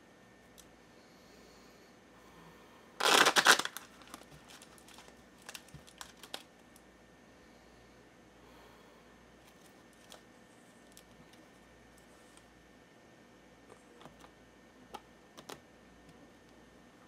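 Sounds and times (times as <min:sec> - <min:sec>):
cards being shuffled: 0:03.0 - 0:06.5.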